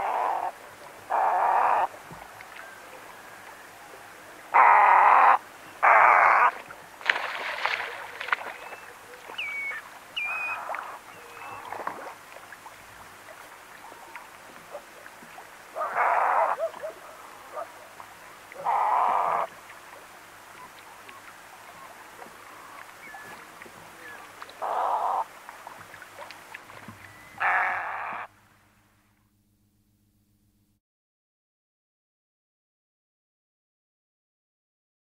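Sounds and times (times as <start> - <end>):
running water: 0.0 - 28.4
heron harsh croaking calls: 1.1 - 1.9, 4.5 - 6.5, 15.8 - 16.7, 18.6 - 19.5, 24.6 - 25.2, 27.4 - 28.3
water splash: 6.5 - 15.4
thin whistled bird calls: 7.9 - 11.8, 22.5 - 24.2.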